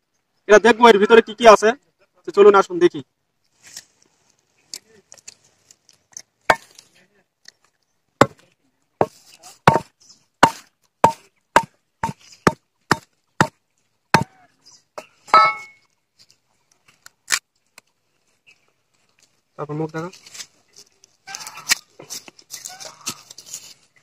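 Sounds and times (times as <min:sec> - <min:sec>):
machete chopping seed husk: 0:06.5 - 0:06.8, 0:08.2 - 0:08.4, 0:09.0 - 0:13.6.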